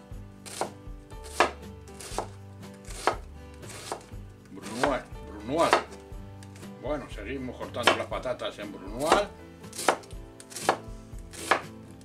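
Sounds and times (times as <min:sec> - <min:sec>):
knife chopping onion on wooden board: 0:00.0 - 0:06.1, 0:07.7 - 0:08.2, 0:08.9 - 0:11.8.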